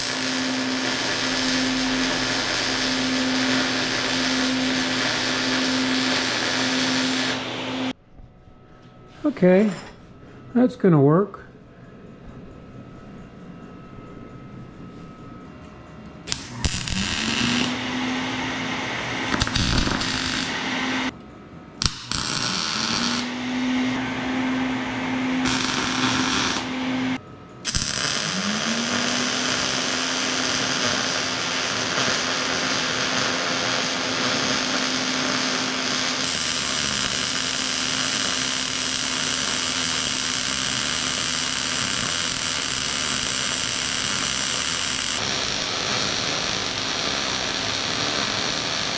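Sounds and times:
welder hum rising in pitch: 0.0 - 8.0, 16.1 - 21.2, 21.8 - 48.9
welding arc hissing: 0.0 - 8.0, 16.3 - 21.1, 21.8 - 23.9, 25.3 - 48.9.

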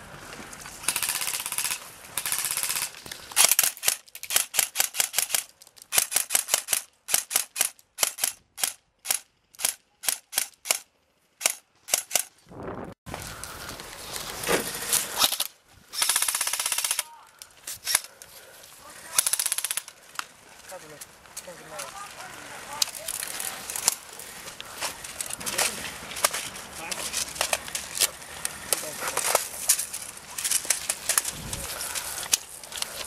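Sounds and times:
airsoft rifles firing: 0.8 - 10.8, 15.2 - 17.2, 19.1 - 19.9.

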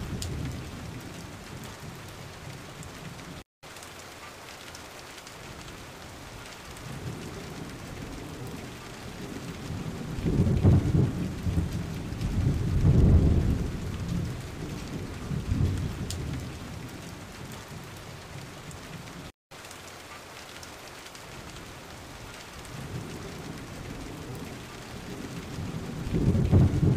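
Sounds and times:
rolling thunder: 0.0 - 2.6, 6.8 - 19.1, 22.7 - 26.9
steady rain: 0.0 - 26.9.

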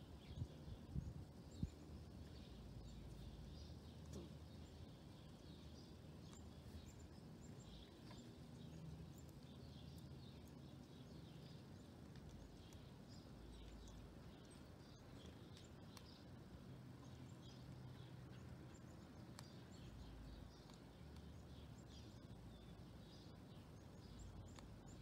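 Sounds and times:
steady low rumble: 0.0 - 18.8
songbirds chirping: 0.0 - 25.0.

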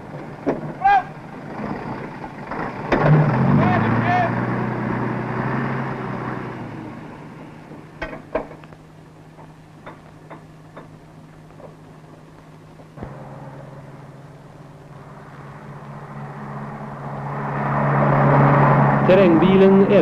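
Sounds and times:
vehicle running noise: 0.0 - 20.0
steady low hum: 6.7 - 20.0
sharp metallic clanks: 13.0 - 15.1.

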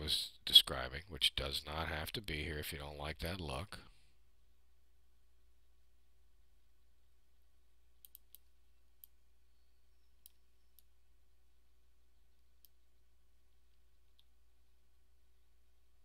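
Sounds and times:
low steady hum: 0.0 - 16.0
computer mouse clicks: 8.0 - 9.2, 10.0 - 10.9, 12.3 - 12.9.

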